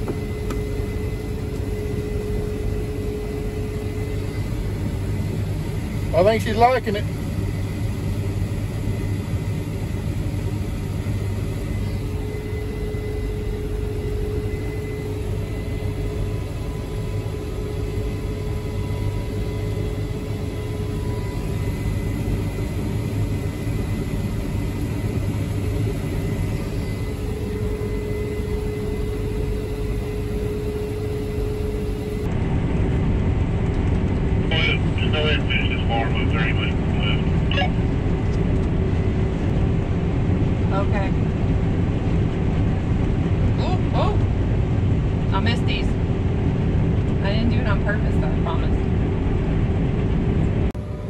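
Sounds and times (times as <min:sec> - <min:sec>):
faint whines: 0:00.0 - 0:32.6, 0:33.6 - 0:40.9
combine harvester engine drone: 0:00.0 - 0:51.0.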